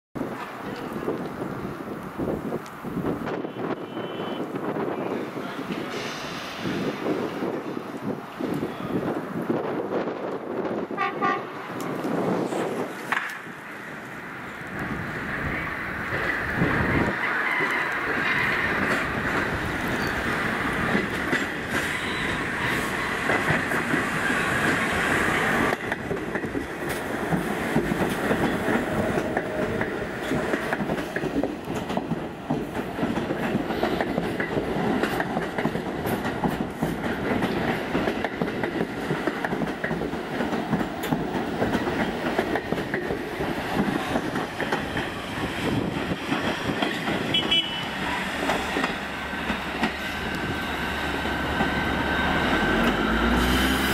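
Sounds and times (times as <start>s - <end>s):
train wheels rumbling and clattering: 0.2s - 53.9s
wheel-on-rail hiss: 5.7s - 7.4s, 47.9s - 53.9s.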